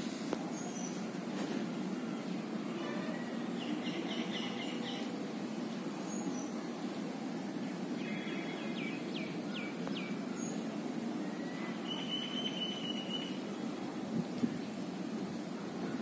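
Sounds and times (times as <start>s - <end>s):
small birds calling: 3.2s - 6.6s, 7.7s - 13.5s
high bird trill: 11.4s - 13.4s.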